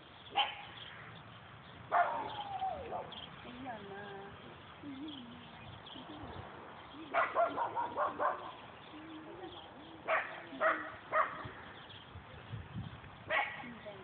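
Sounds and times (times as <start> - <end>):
dog barking: 0.3 - 0.7, 1.9 - 3.1, 7.1 - 8.6, 10.1 - 11.5, 13.3 - 13.7.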